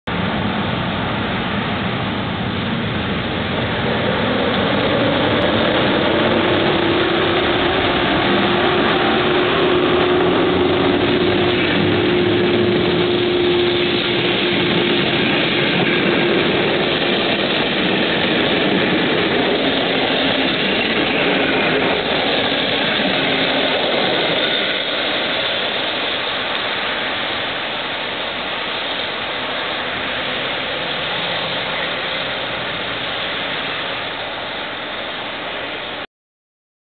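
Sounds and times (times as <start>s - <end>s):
train wheels rumbling on rail: 0.1s - 36.0s
thin whine: 3.4s - 28.2s.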